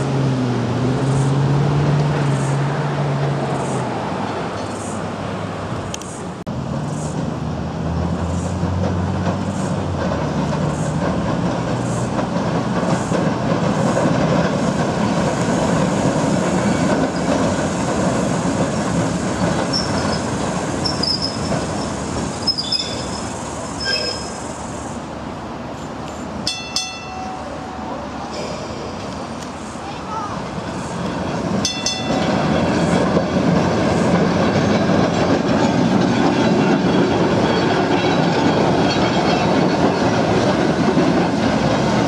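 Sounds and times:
electric tram rumbling on track: 0.0s - 42.0s
high-pitched wheel squeals: 19.7s - 24.5s.

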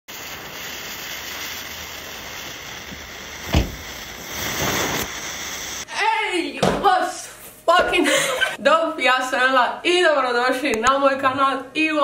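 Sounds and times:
fuse hissing and sputtering: 0.1s - 5.9s
short sharp thump: 3.4s - 3.9s.

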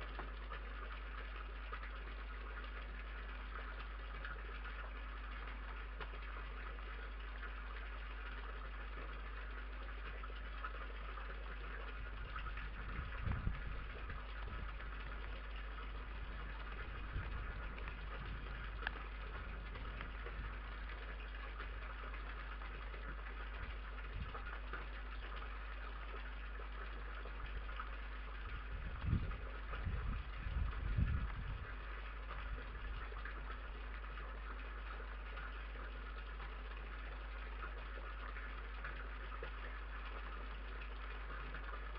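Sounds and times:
low electrical hum with hiss: 0.0s - 41.9s
soft low thumps: 12.0s - 21.2s.

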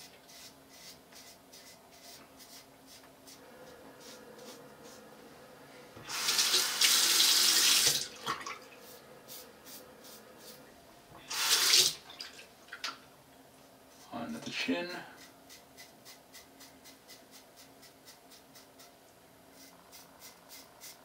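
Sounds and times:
razor strokes on stubble: 0.0s - 5.0s, 15.1s - 18.9s, 19.5s - 21.0s.

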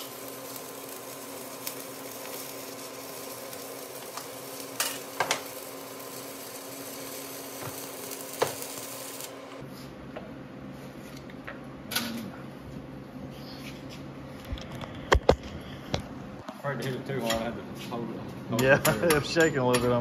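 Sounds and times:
sharp welding pops: 0.0s - 9.6s
welding arc crackling: 0.0s - 9.6s.

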